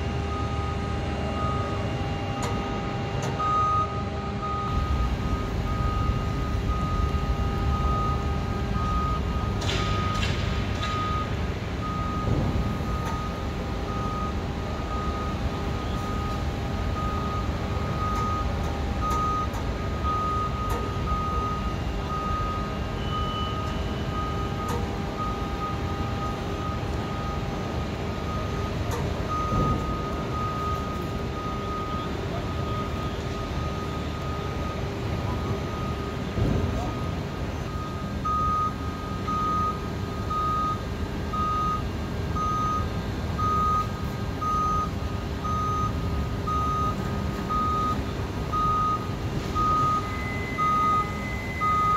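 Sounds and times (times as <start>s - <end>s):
warning beeper beeping: 42.4s - 51.9s.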